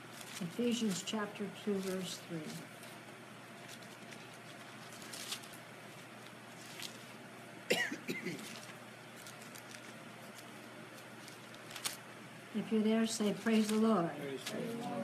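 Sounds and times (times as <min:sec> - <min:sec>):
pages rustling: 0:00.0 - 0:07.2, 0:08.4 - 0:12.0, 0:13.2 - 0:14.9
woman clearing her throat: 0:07.7 - 0:08.4.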